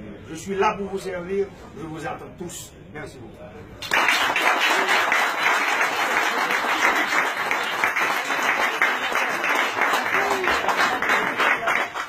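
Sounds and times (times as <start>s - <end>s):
crowd applauding: 3.8s - 12.0s.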